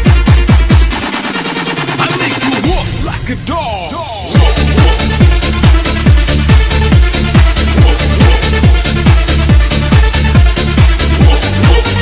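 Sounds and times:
heavy kick drum: 0:00.0 - 0:01.1, 0:04.3 - 0:12.0
electronic dance music: 0:00.0 - 0:12.0.

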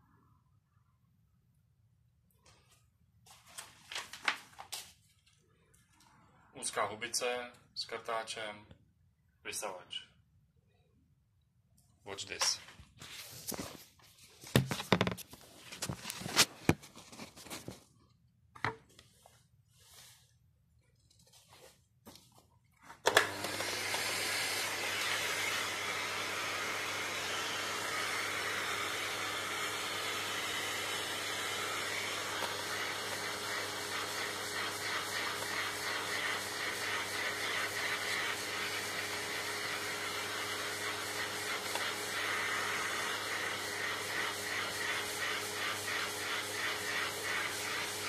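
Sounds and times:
vacuum cleaner running: 0:23.0 - 0:48.0.

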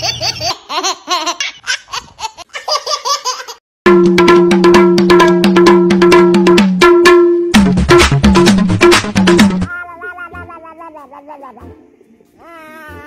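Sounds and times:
baby laughing: 0:00.0 - 0:03.6, 0:09.7 - 0:11.4
loud music with drumbeat: 0:03.9 - 0:09.7.

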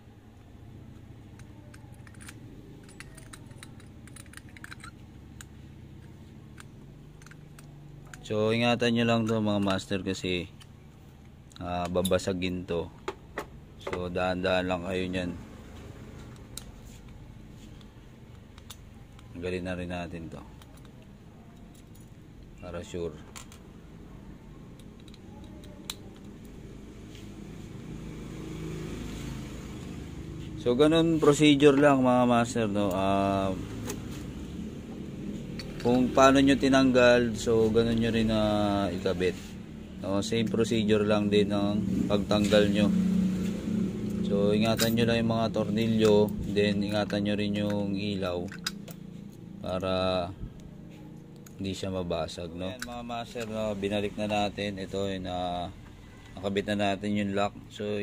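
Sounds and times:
background traffic rumble: 0:00.0 - 0:58.0
metal and glass clicks and taps: 0:01.0 - 0:08.3, 0:17.8 - 0:19.4, 0:35.5 - 0:36.0, 0:48.4 - 0:49.4
metal lamp housing handled: 0:01.4 - 0:05.5, 0:48.4 - 0:49.1.

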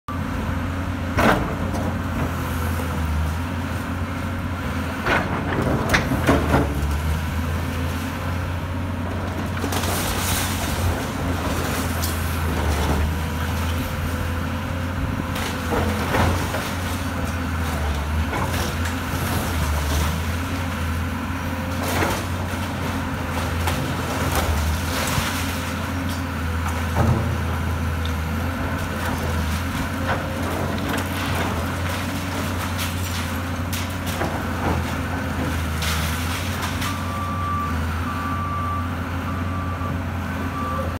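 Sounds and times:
excavator diesel engine running: 0:00.1 - 0:40.9
masonry cracking and crashing: 0:09.0 - 0:37.2.

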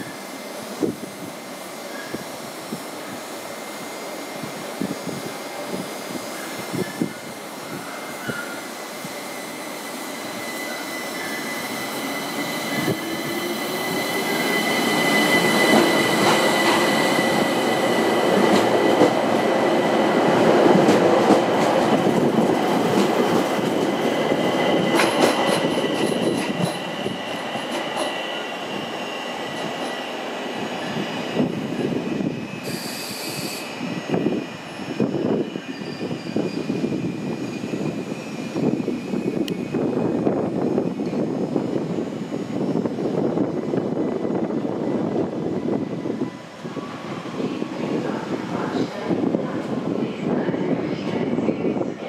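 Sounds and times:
high wheel squeal: 0:06.3 - 0:18.4, 0:32.4 - 0:33.9, 0:34.7 - 0:39.4
train wheel clatter and clicks: 0:24.9 - 0:26.9.

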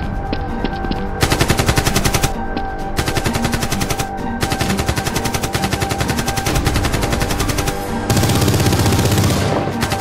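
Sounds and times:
automatic gunfire: 0:03.0 - 0:10.0.

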